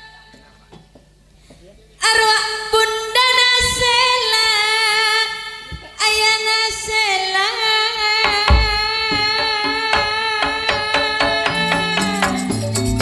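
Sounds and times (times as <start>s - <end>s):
woman singing with vibrato: 2.0s - 12.8s
low thumps: 8.2s - 13.0s.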